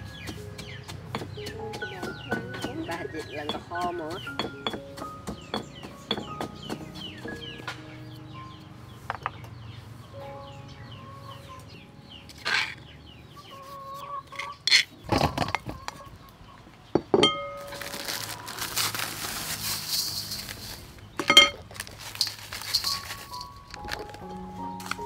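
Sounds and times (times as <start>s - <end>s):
chickens clucking: 0.0s - 18.7s
kitchen utensils knocking and clinking: 0.6s - 7.6s, 14.4s - 15.8s, 17.0s - 18.2s, 19.4s - 24.2s.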